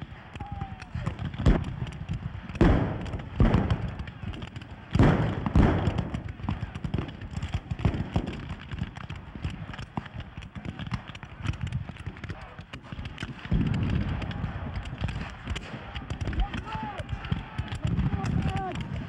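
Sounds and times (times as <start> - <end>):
crackle of scattered shots: 0.0 - 19.0
musket reports: 11.1 - 19.0.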